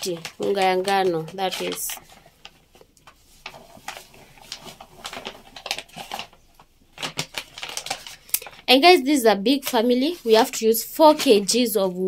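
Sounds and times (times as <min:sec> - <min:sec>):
flour packet crinkling: 0:00.0 - 0:08.9.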